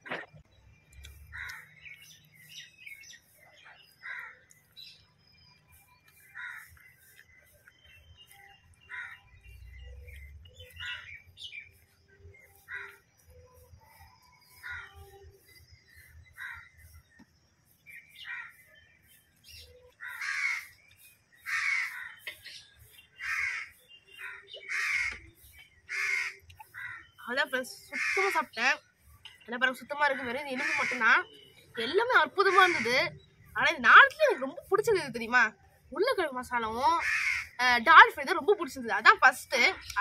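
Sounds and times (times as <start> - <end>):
crows cawing: 1.3 - 1.8, 4.0 - 4.4, 6.3 - 6.8, 8.8 - 9.2, 12.7 - 13.0, 16.4 - 16.8, 18.2 - 18.6, 20.0 - 20.8, 21.4 - 22.4, 23.2 - 25.3, 25.9 - 27.2, 28.0 - 28.5, 30.6 - 31.2, 32.5 - 32.9, 37.0 - 37.6.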